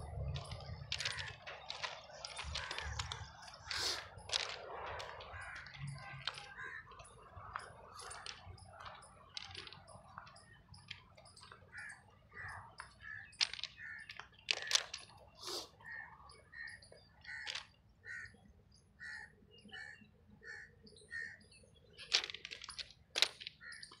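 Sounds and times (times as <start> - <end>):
footsteps on ballast stones: 0.0 - 15.4, 16.9 - 17.7, 22.0 - 24.0.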